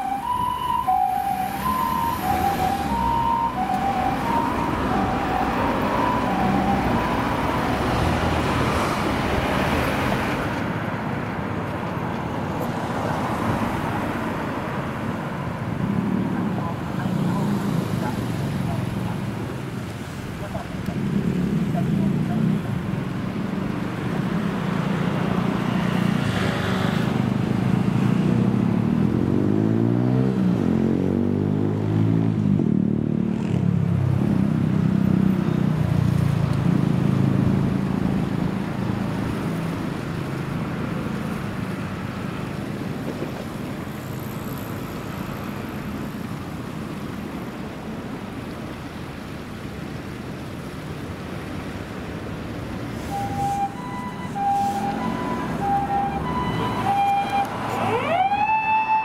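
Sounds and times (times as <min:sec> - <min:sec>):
vehicle passing: 0:00.0 - 0:10.9, 0:52.7 - 0:58.9
vehicle engines running: 0:00.0 - 0:30.0, 0:31.9 - 0:58.9.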